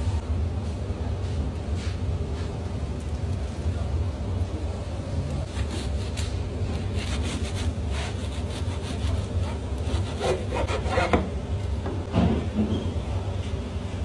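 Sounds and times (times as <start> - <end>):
bread knife sawing bread: 7.0 - 11.3.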